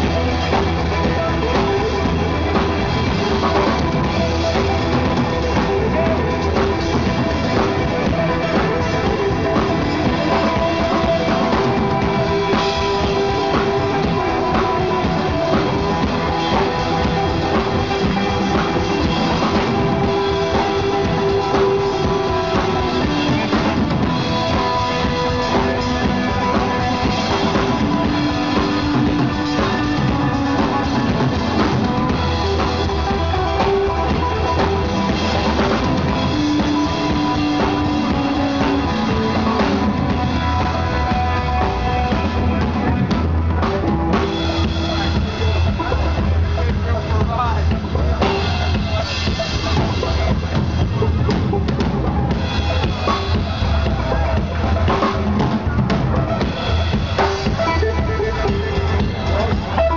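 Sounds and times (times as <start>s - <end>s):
long held instrument notes: 0.0s - 46.5s
bass drum and snare: 0.0s - 59.9s
live band playing instrumental: 0.0s - 59.9s.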